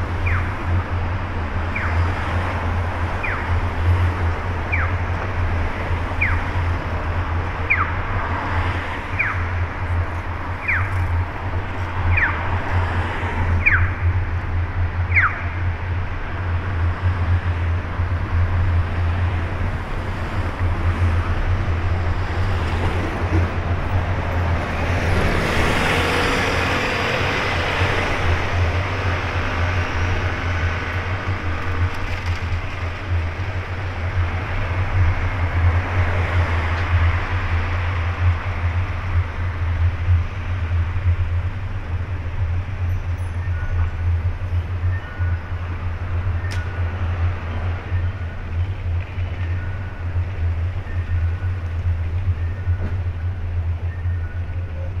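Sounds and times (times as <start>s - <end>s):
traffic engine and tyre noise: 0.0s - 55.0s
vehicle passing close: 19.8s - 38.8s.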